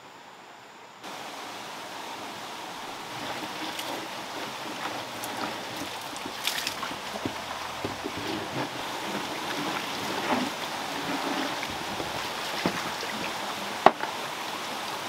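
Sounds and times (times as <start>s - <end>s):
water splashing into wooden trough: 3.0s - 14.2s
tray knocking on trough: 6.8s - 10.5s.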